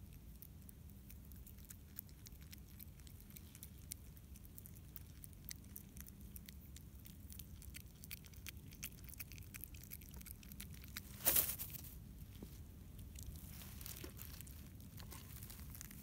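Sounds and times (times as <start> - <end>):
possum chewing food: 0.0 - 11.2, 11.9 - 16.0
loud crunch or rustle: 10.8 - 12.0, 13.2 - 16.0.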